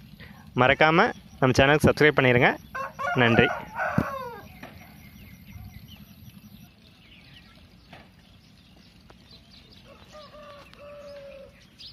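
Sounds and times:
chicken long held call: 2.7 - 4.5.

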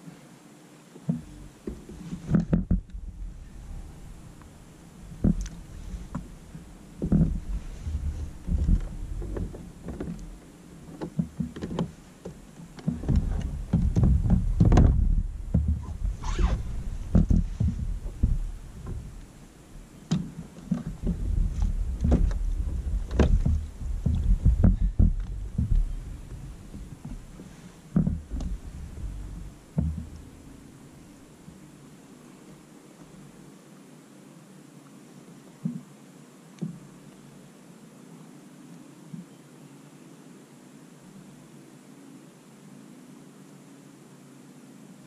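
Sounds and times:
knocks against kayak: 1.0 - 3.0, 10.9 - 19.1, 20.1 - 27.2, 27.9 - 30.3
low rumble: 2.4 - 10.9, 12.9 - 20.0, 20.8 - 31.6.

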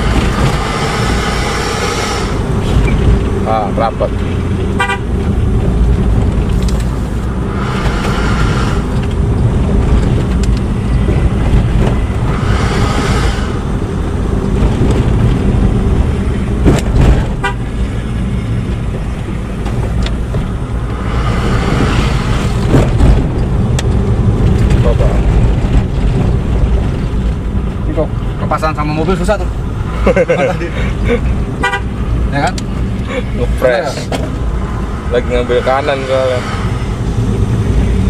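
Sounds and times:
hiss: 0.0 - 2.8, 7.5 - 9.2, 12.2 - 14.0, 20.9 - 23.0, 35.1 - 37.6
car engine and road rumble: 0.0 - 38.0.

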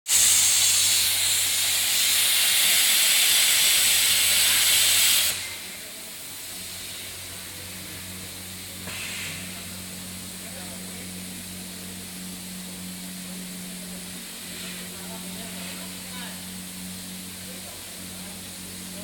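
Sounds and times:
plasma torch hissing: 0.1 - 11.2, 12.7 - 16.4.

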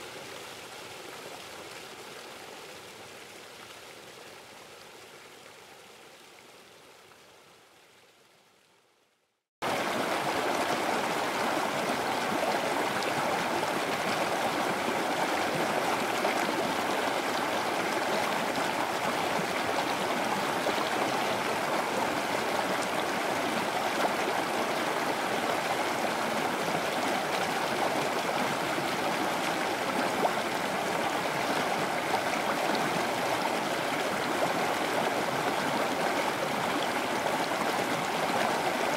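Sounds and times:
quiet water sound: 0.0 - 38.9
waterfall rushing: 9.6 - 38.9.

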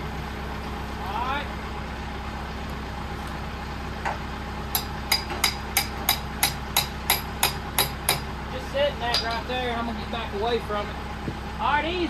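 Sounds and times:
tractor engine idling: 0.0 - 12.0
hammer striking metal: 4.7 - 8.3.

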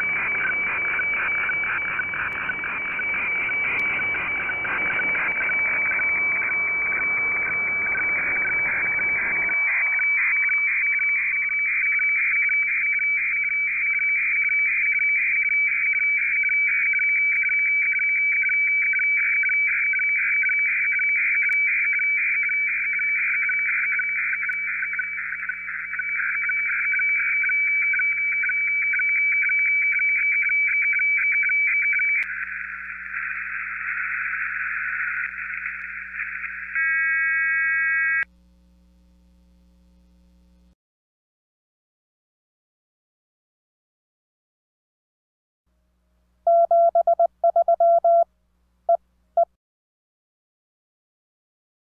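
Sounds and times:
radio background hiss: 0.0 - 11.6, 32.2 - 38.2
radiofax warbling tones: 0.0 - 38.2.

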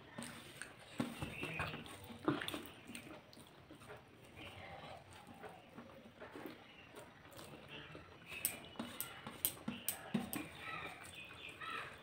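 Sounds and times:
mouth chewing: 0.0 - 12.0
wet eating smacks: 0.2 - 3.8.

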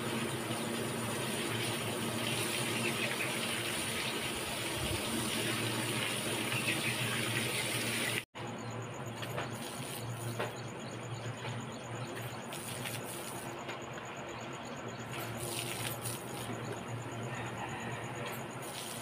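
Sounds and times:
water gushing from a hose: 0.0 - 8.3, 9.5 - 10.2, 12.4 - 13.5, 15.2 - 16.6, 18.6 - 19.0
water splashing on concrete: 12.5 - 13.4, 15.4 - 16.6.

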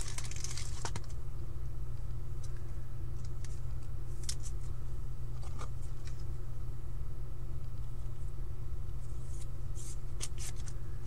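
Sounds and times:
trading cards rustling and clicking: 0.0 - 1.2, 9.3 - 10.8
steady low hum: 0.0 - 11.0.

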